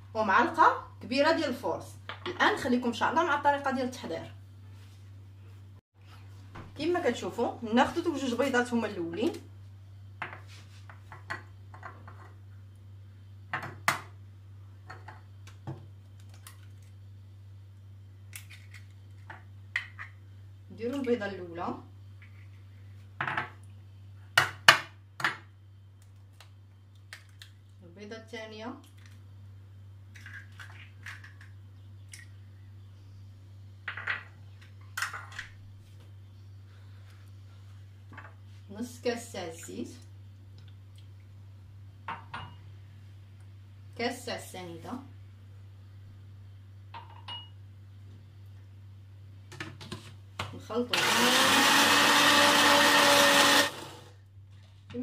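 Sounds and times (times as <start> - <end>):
egg cracking: 18.3 - 20.2, 26.0 - 27.7.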